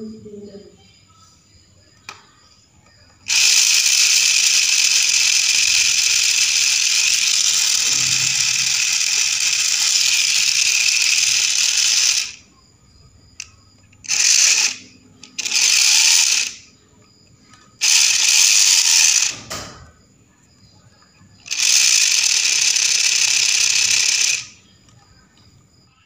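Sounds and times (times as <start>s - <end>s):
electric motor gearbox whirring: 3.2s - 12.4s, 14.0s - 16.6s, 17.8s - 19.5s, 21.5s - 24.6s.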